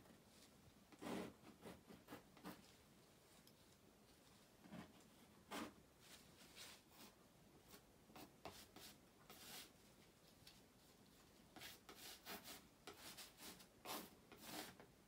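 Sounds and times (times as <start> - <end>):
palette knife scraping canvas: 1.0 - 2.6, 11.6 - 14.8.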